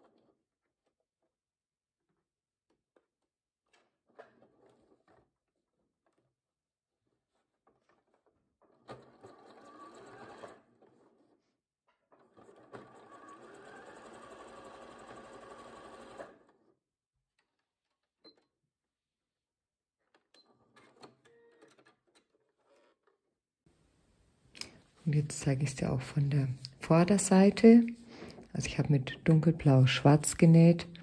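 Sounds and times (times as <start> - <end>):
sewing machine stitching: 3.6 - 6.2, 7.3 - 16.8.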